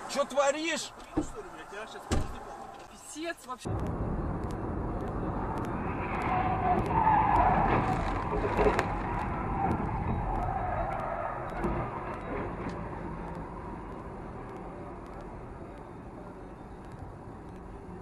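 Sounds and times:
road and engine rumble: 0.0s - 18.0s
car tyres squealing: 5.0s - 18.0s.

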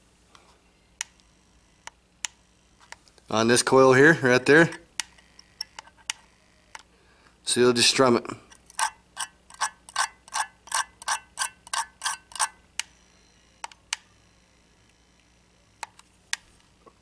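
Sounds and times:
tweezers strumming wire coils: 8.7s - 12.6s.

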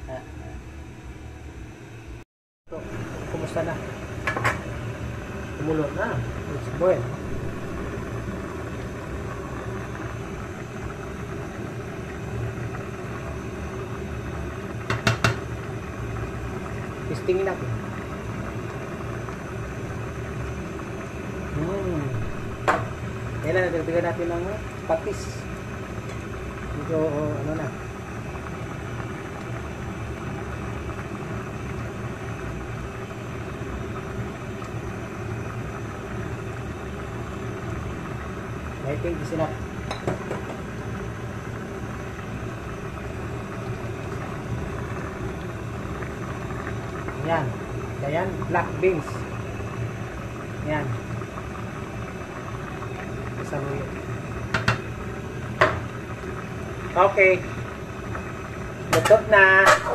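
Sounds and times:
gas burner rumble: 0.0s - 59.9s
water boiling in pot: 2.7s - 59.9s.

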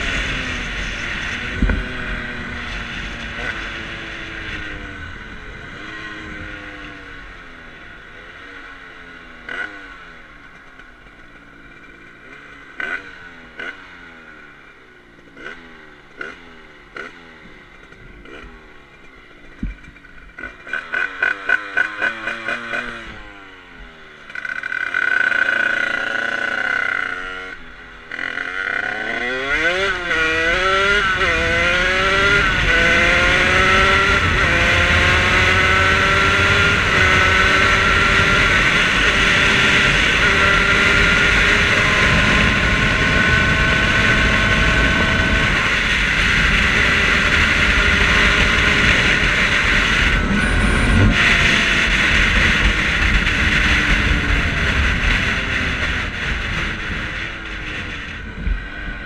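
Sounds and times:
wind rush on microphone: 0.0s - 6.8s, 30.8s - 59.0s
moped engine revving: 0.0s - 59.0s.

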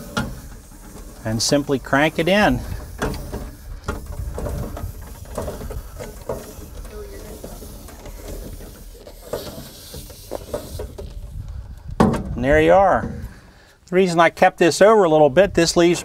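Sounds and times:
power cord knocking and rubbing on reel: 0.0s - 12.4s.

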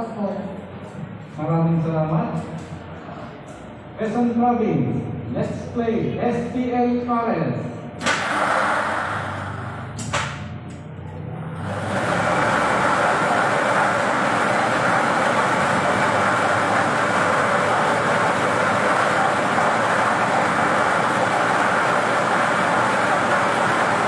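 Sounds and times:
lottery machine blower churning balls: 8.0s - 24.0s.

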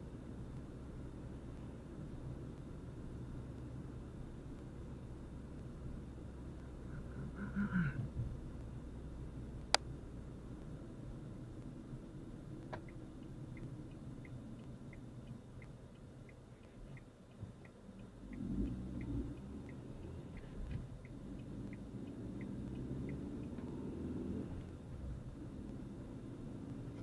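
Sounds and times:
car engine and road rumble: 0.0s - 27.0s
turn signal ticking: 0.0s - 27.0s.

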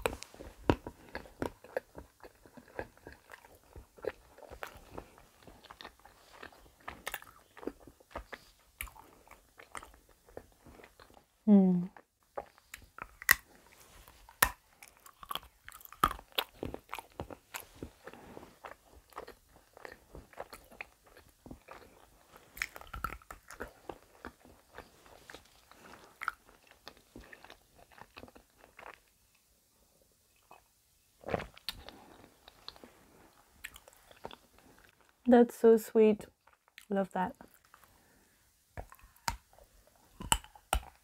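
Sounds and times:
crunchy chewing: 0.0s - 11.2s, 12.3s - 29.1s, 31.2s - 35.1s, 38.8s - 41.0s
chocolate snapping: 38.8s - 41.0s.

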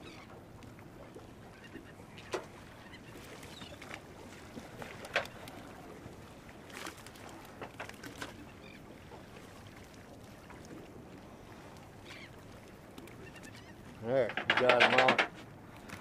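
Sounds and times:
sharp knocks: 14.2s - 15.3s.

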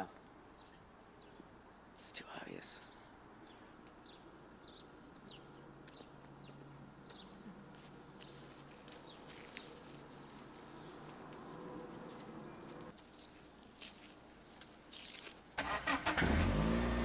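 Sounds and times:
bird chirps: 2.8s - 9.4s
light footsteps on grass: 5.3s - 15.6s.

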